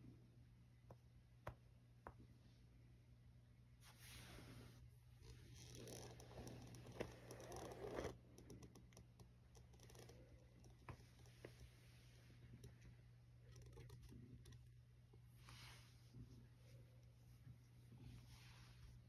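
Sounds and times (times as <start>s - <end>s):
low steady hum: 0.0s - 19.0s
cat rustling on a rug: 3.8s - 4.8s.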